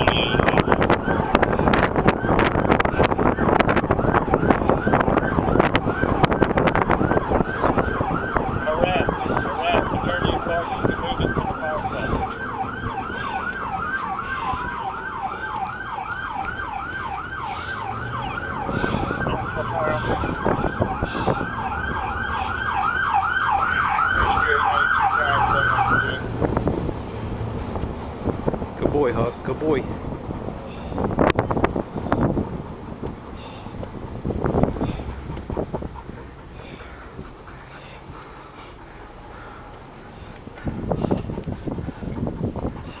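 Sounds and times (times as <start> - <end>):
siren yelping: 0.0 - 26.8
wind on microphone: 0.0 - 43.0.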